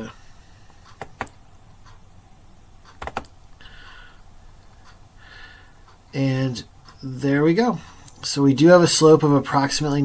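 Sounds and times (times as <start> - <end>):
faint room hum: 0.0 - 10.0
computer mouse clicks: 0.9 - 2.0, 2.8 - 3.4.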